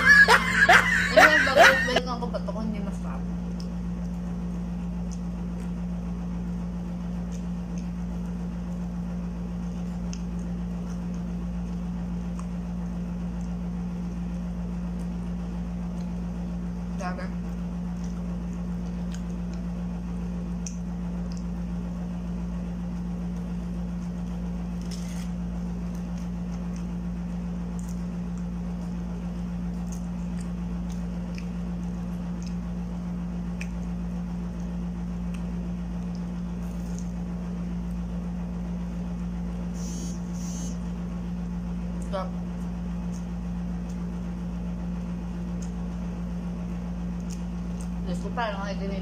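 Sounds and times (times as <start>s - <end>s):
steady low hum: 0.0s - 49.0s
soft squishy chewing: 17.4s - 21.9s, 22.8s - 38.1s, 41.4s - 44.2s, 47.0s - 48.0s.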